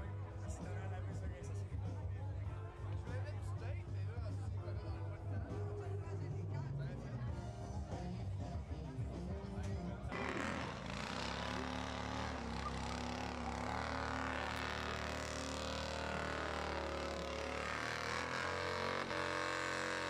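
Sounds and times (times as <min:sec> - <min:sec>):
motorcycle engine at high revs: 0:10.1 - 0:20.0.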